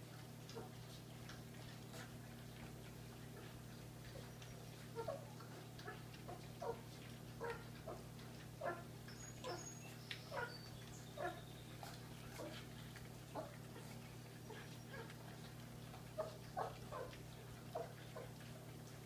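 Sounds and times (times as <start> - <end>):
puppies eating: 0.0 - 19.0
puppies whimpering: 8.6 - 18.3.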